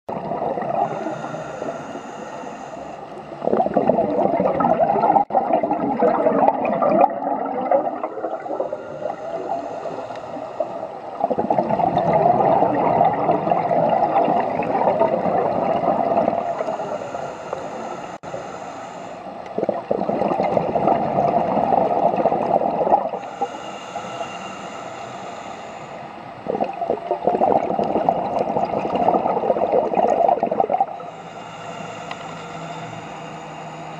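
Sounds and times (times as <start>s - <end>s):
bubbling exhalations: 0.1s - 1.1s, 3.4s - 9.5s, 11.2s - 16.8s, 19.6s - 23.2s, 26.4s - 31.0s
regulator hiss on inhale: 0.8s - 3.8s, 8.1s - 11.3s, 15.6s - 19.8s, 23.1s - 26.5s, 30.9s - 33.9s.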